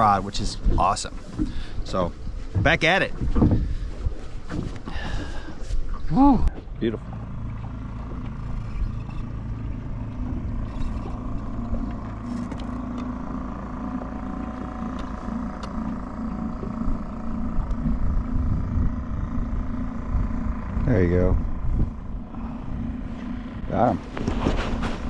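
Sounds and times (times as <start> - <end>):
boat motor humming: 0.0 - 25.0
choppy water: 0.0 - 25.0
wind rumble: 14.7 - 25.0.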